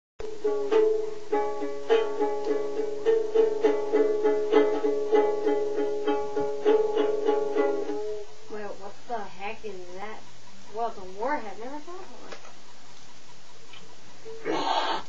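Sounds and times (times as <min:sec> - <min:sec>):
ukulele strumming: 0:00.2 - 0:08.4.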